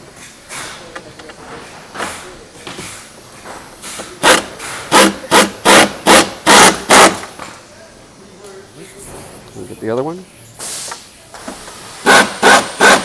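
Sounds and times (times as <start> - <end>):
pneumatic impact wrench bursts: 3.7 - 7.6, 10.6 - 13.0.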